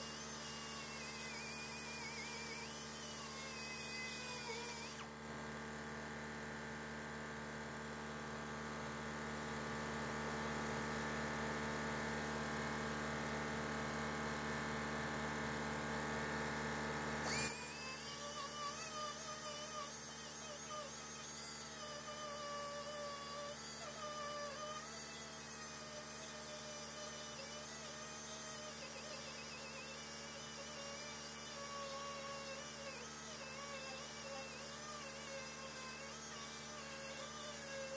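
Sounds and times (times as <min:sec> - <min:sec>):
power grinder running: 0:00.0 - 0:07.2, 0:16.0 - 0:37.9.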